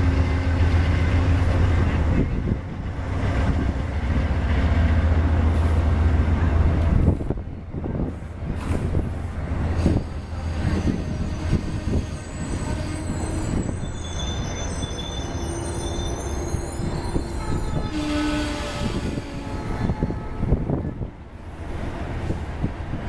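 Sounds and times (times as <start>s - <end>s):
train wheels rumbling on rail: 0.0s - 23.0s
wheels squealing: 9.8s - 19.6s.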